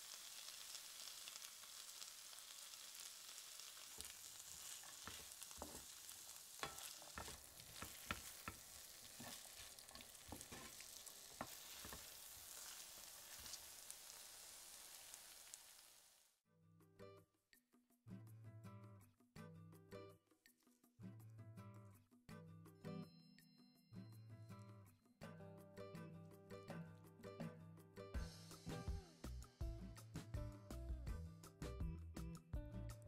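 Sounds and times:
sauce sizzling in a frying pan: 0.0 - 16.4
utensil stirring and knocking pan: 3.9 - 13.7.

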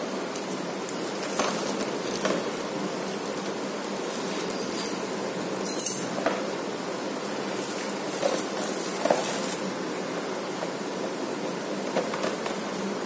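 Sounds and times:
plastic shrink-wrap tearing: 0.4 - 5.0.

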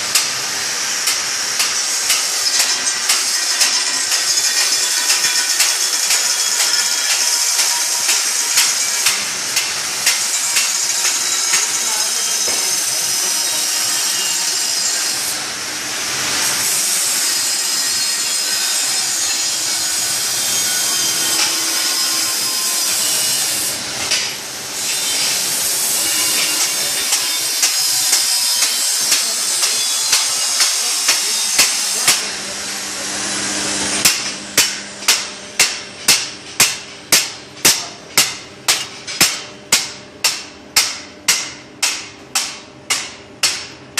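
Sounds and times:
arc welding crackling and hissing: 0.0 - 43.8
chipping hammer striking metal: 1.0 - 11.8, 34.0 - 43.8.

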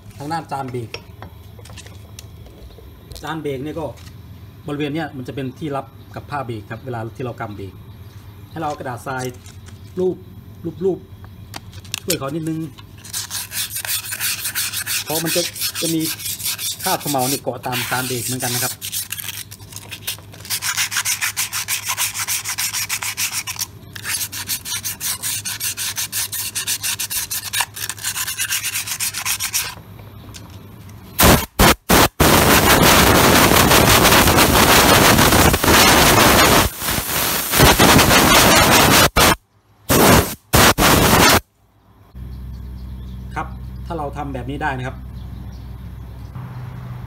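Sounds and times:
sandpaper scrubbing metal: 13.0 - 29.8, 31.2 - 41.4
loud rushing noise: 31.2 - 41.4.

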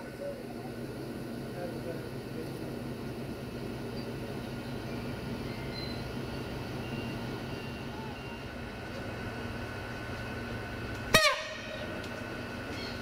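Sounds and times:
train engine hum: 0.0 - 13.0
short sharp train horn toot: 11.1 - 11.8.

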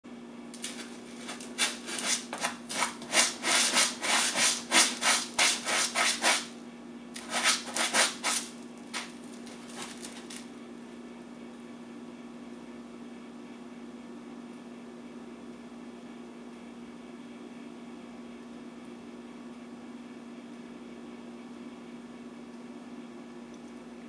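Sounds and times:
faint steady hum: 0.1 - 24.0
cat scratching litter: 0.6 - 6.6, 7.2 - 10.5.

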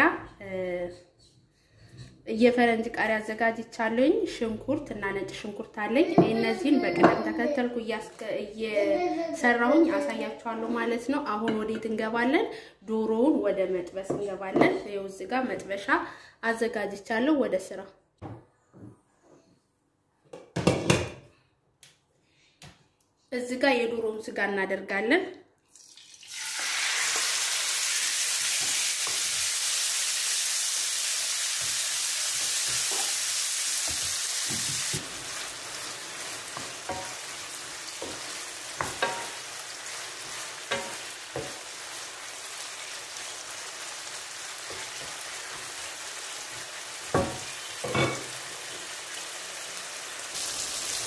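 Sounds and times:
chicken sizzling in oil: 25.8 - 51.0
spoon knocking against pan: 38.0 - 39.4.

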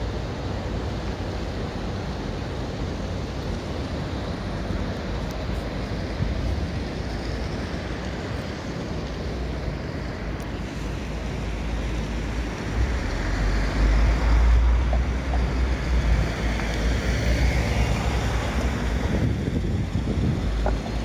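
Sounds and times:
steady rushing noise: 0.0 - 21.0
wind buffeting microphone: 17.7 - 21.0.

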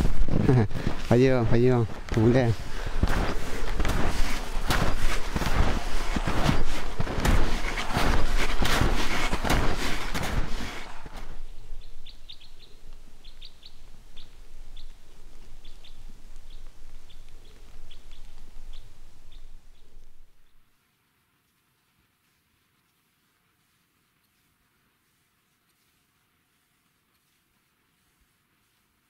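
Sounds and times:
footsteps crunching through snow: 0.0 - 20.6, 21.4 - 29.0
small bird chirping: 11.4 - 20.6.

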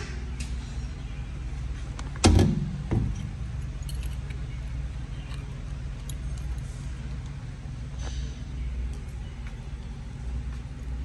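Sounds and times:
steady low hum: 0.0 - 11.0
keys jingling: 3.1 - 6.7.

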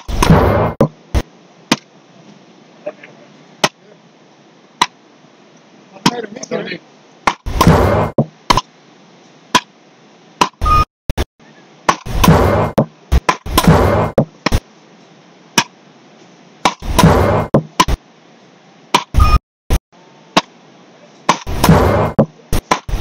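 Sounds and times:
paddles hitting a ball: 1.7 - 1.9, 11.9 - 14.6, 21.3 - 23.0.

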